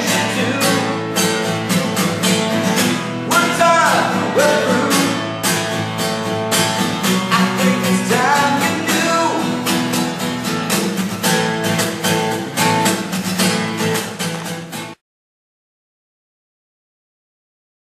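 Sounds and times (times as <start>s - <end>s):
man singing: 0.0s - 1.3s, 3.2s - 5.4s, 7.2s - 9.8s
acoustic guitar strummed: 0.0s - 15.0s.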